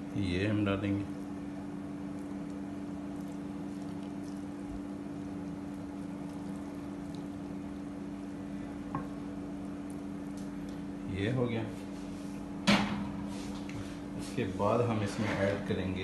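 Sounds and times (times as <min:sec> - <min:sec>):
steady low hum: 0:00.0 - 0:16.0
liquid trickling onto rice: 0:01.1 - 0:08.7.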